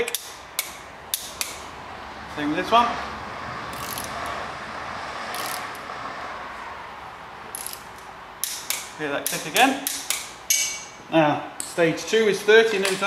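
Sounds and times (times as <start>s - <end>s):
torque wrench ratcheting: 0.0s - 1.6s, 3.7s - 4.4s, 5.3s - 5.8s, 7.5s - 10.3s.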